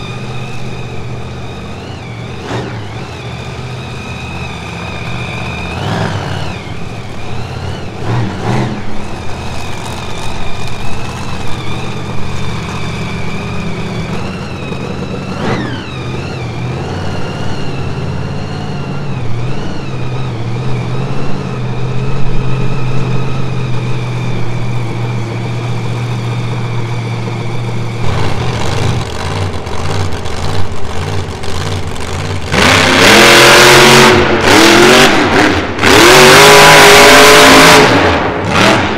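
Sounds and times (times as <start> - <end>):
truck engine idling and revving: 0.0 - 38.9.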